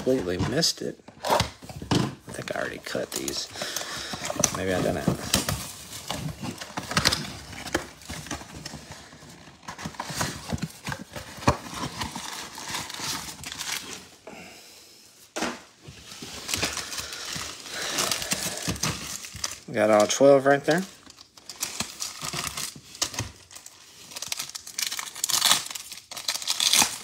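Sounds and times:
card packs tapping and scraping: 0.0s - 13.9s, 15.4s - 27.0s.

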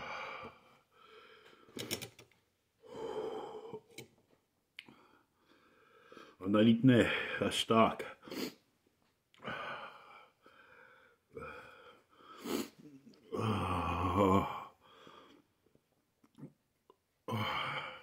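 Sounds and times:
man breathing hard and wheezing: 0.0s - 1.8s, 2.8s - 3.9s, 4.9s - 6.4s, 9.4s - 15.6s, 17.3s - 18.0s.

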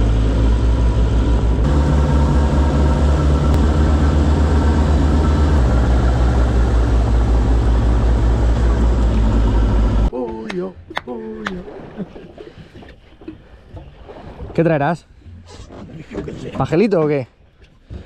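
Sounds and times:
boat engine droning: 0.0s - 10.1s.

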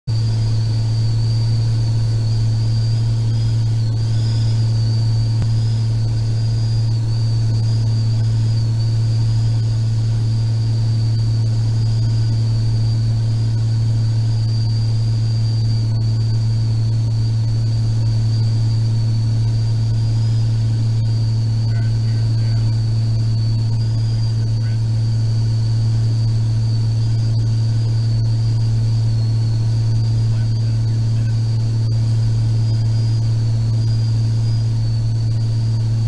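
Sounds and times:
aircraft engine drone: 0.1s - 36.0s
thin high whine: 0.1s - 36.0s.

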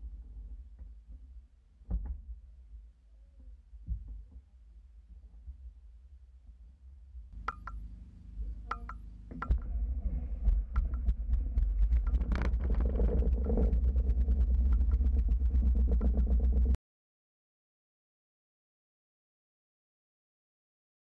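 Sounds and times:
sharp clicks: 7.4s - 7.9s
propeller wash rumbling: 7.4s - 16.8s.

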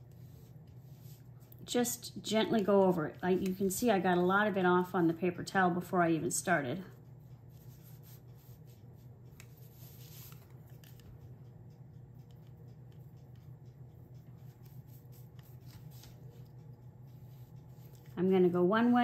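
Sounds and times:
steady low hum: 0.0s - 19.0s
brush scratching on glass: 7.5s - 11.0s, 14.1s - 18.6s.

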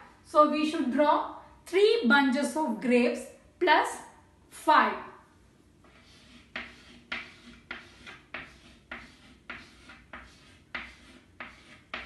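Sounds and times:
chalk scratching on blackboard: 5.8s - 12.0s.

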